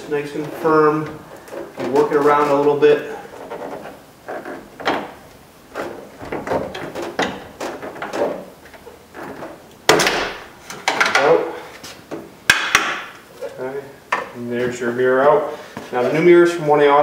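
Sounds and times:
plastic mirror creaking and scraping: 0.0 - 9.7.

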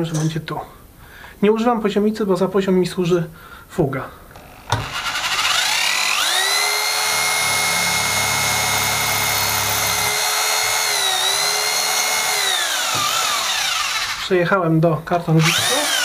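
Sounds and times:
drill motor high whine: 4.6 - 14.3, 15.4 - 16.0
drill bit grinding tile: 4.7 - 14.3, 15.4 - 16.0.

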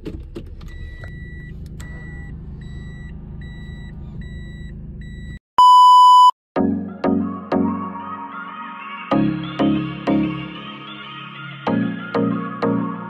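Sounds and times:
car warning chime beeping: 0.7 - 6.3
loud electronic bleep: 2.9 - 6.4.

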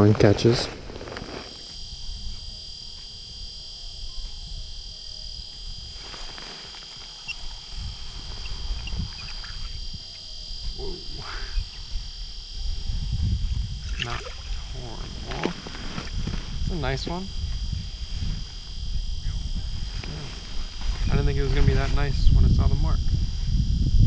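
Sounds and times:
steady high whine: 0.0 - 24.0
wind rumbling on microphone: 0.0 - 24.0.

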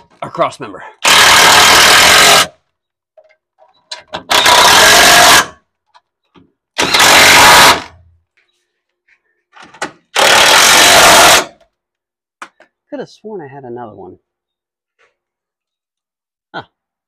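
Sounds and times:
impact driver hammering bolts: 3.9 - 5.5, 6.8 - 7.9, 9.6 - 11.4.

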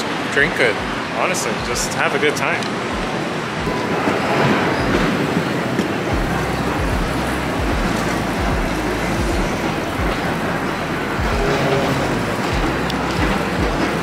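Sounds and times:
moving walkway rolling rumble: 2.6 - 14.0
low thumps: 5.8 - 14.0.

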